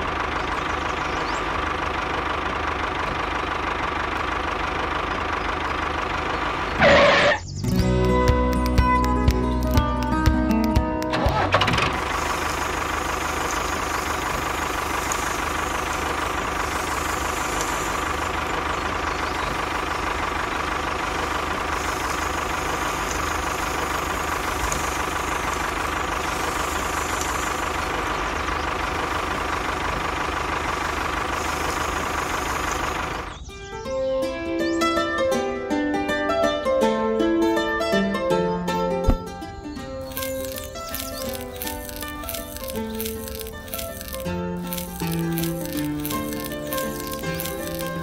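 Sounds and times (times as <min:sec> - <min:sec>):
tractor engine running: 0:00.0 - 0:33.6, 0:39.0 - 0:48.0
plucked-string music: 0:07.6 - 0:11.9, 0:34.0 - 0:40.1.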